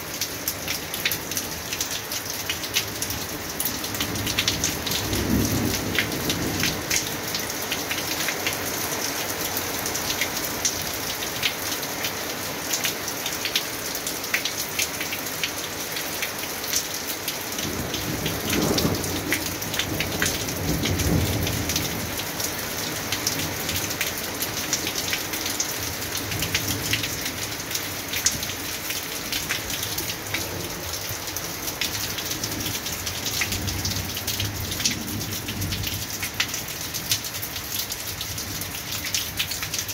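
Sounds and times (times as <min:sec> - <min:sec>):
raindrops spattering close by: 0:00.0 - 0:39.9
steady rain falling: 0:00.0 - 0:39.9
low rumble of thunder: 0:04.2 - 0:07.3, 0:17.7 - 0:22.6.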